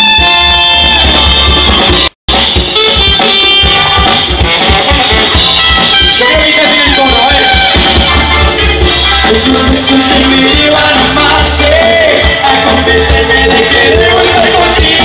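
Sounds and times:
drum kit beat: 0:00.0 - 0:15.0
electric bass: 0:00.0 - 0:15.0
trombone: 0:00.0 - 0:15.0
trumpet: 0:00.0 - 0:15.0.

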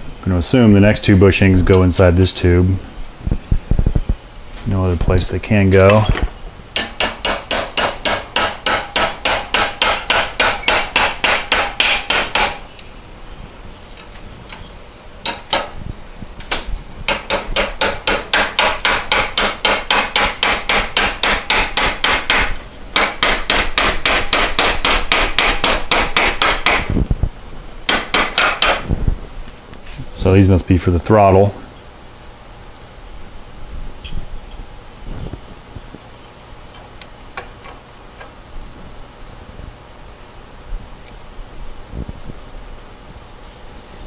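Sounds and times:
hammer striking metal: 0:06.8 - 0:12.6, 0:16.5 - 0:26.9, 0:27.9 - 0:28.8.

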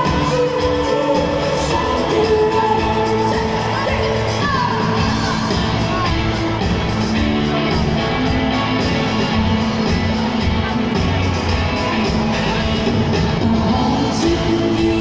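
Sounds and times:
woman singing: 0:00.0 - 0:06.3, 0:13.4 - 0:15.0
live pop-rock band: 0:00.0 - 0:15.0.

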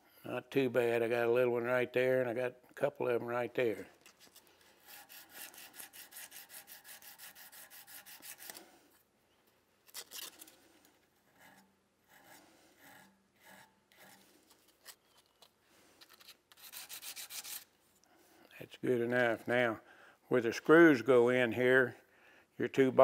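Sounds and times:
sandpaper rubbing on metal: 0:04.8 - 0:08.7, 0:16.2 - 0:17.7.

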